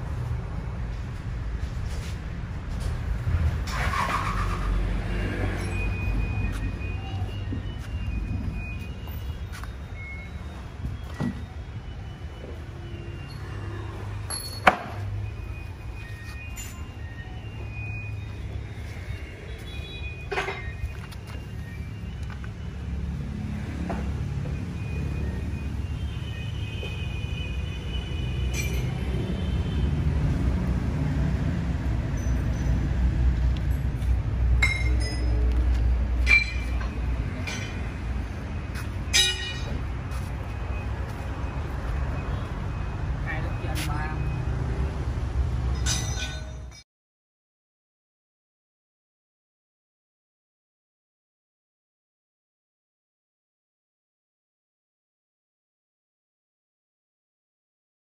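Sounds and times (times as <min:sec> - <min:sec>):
vehicle engine humming: 0:00.0 - 0:46.4
sharp metallic clinks: 0:13.2 - 0:15.1, 0:16.4 - 0:17.2, 0:28.4 - 0:29.2, 0:32.1 - 0:32.9, 0:34.6 - 0:35.5, 0:36.2 - 0:38.0, 0:39.0 - 0:40.0, 0:45.7 - 0:46.8.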